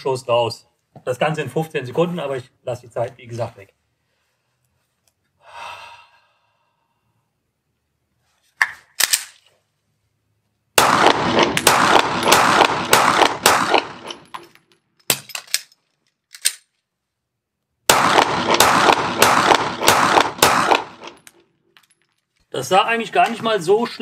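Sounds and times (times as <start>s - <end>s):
magazine reload clatter and click: 8.6s - 9.5s, 11.0s - 16.9s
pistol slide racked clicks: 9.0s - 9.4s, 15.0s - 16.7s
rapid pistol shots: 10.8s - 14.2s, 17.9s - 21.2s.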